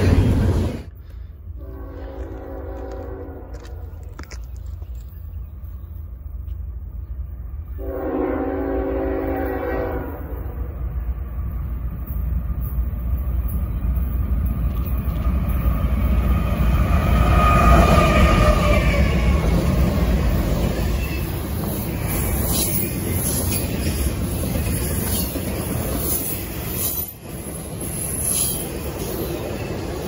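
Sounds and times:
train rumbling past: 0:00.0 - 0:30.0
locomotive air horn blast: 0:01.6 - 0:03.8, 0:07.8 - 0:10.4.

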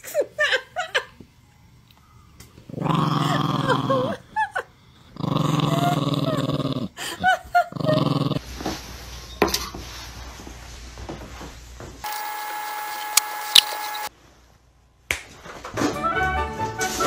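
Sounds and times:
small dog growling: 0:02.7 - 0:04.2, 0:05.0 - 0:07.0, 0:07.6 - 0:08.4.

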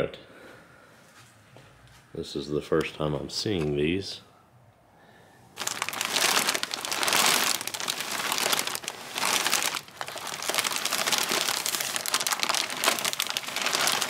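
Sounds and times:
plastic bag crinkling: 0:05.6 - 0:14.0.

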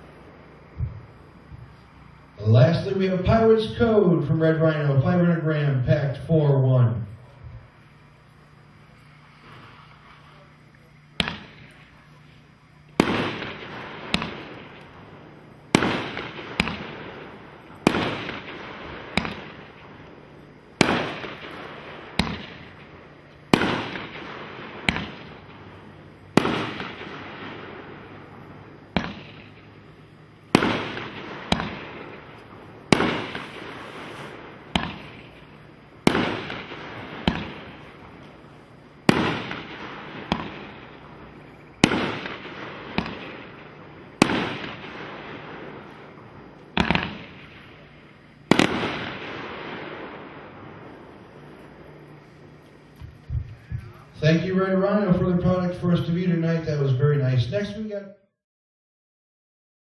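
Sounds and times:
firework bangs: 0:00.0 - 0:56.8.

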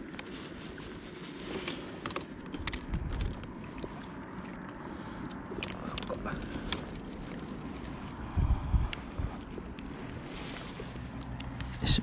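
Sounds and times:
wind rumble on microphone: 0:02.4 - 0:04.7, 0:05.4 - 0:12.0.

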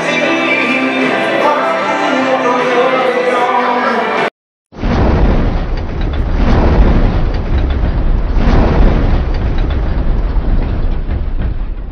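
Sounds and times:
loud dense rumbling noise: 0:04.8 - 0:11.9.

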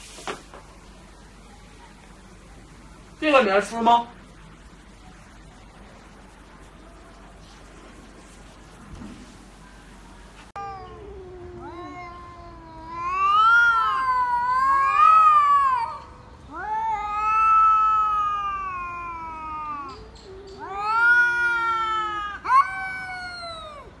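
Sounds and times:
cat sharp cry: 0:10.6 - 0:23.9
cats yowling: 0:10.6 - 0:24.0.

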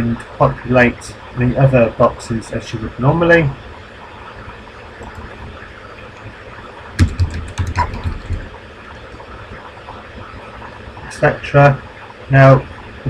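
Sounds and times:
low background hum: 0:00.0 - 0:13.0
keyboard key clicks: 0:07.0 - 0:08.4.

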